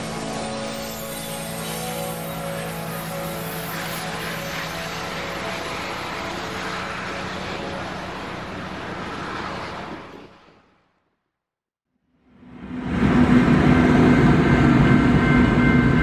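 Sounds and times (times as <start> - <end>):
ship engines humming: 0.0 - 10.8.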